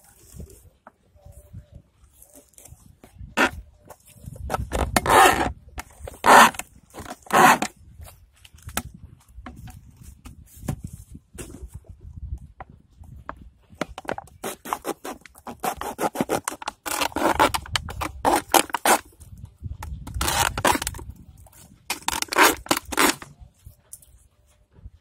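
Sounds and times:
knife cutting plastic bottle: 0:03.3 - 0:03.6, 0:04.3 - 0:07.8, 0:13.8 - 0:19.1, 0:19.9 - 0:21.2, 0:21.9 - 0:23.4.

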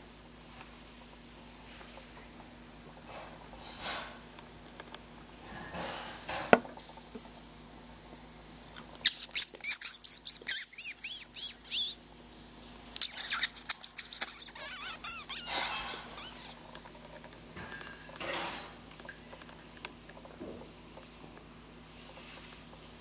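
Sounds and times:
high arching chirps: 0:09.0 - 0:12.0, 0:13.0 - 0:16.6.

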